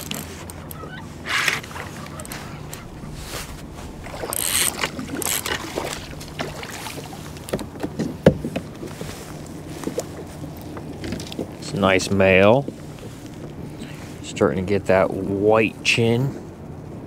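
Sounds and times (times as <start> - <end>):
fish splashing at surface: 1.7 - 8.2
knocks against kayak hull: 7.5 - 8.9.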